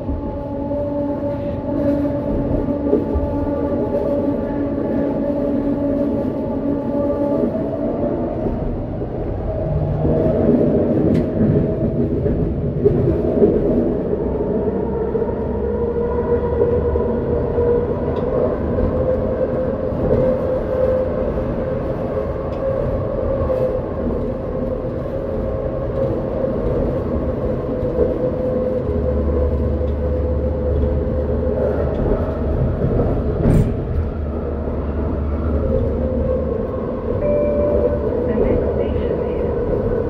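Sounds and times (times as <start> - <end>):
train hum and wheel rumble: 0.0 - 40.0.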